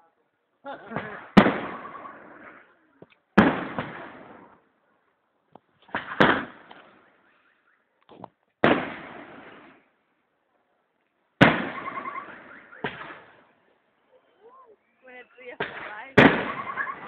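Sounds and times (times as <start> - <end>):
faint firework pops: 11.4 - 13.4.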